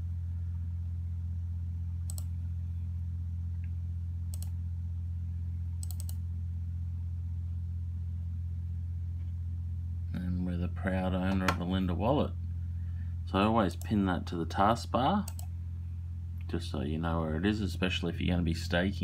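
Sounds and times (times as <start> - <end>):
steady low hum: 0.0 - 19.0
computer mouse clicks: 2.1 - 2.3, 4.3 - 4.6, 5.8 - 6.2, 15.3 - 15.5.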